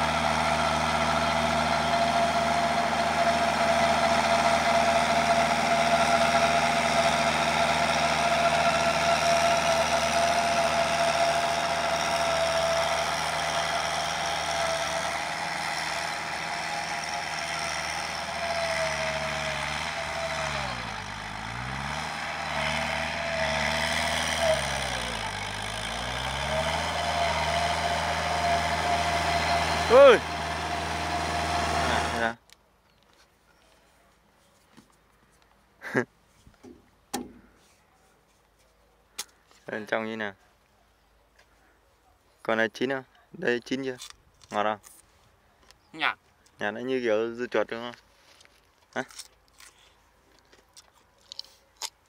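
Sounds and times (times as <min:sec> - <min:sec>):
rotary tiller through soil: 0:00.0 - 0:32.4
tractor diesel engine under load: 0:00.0 - 0:32.4.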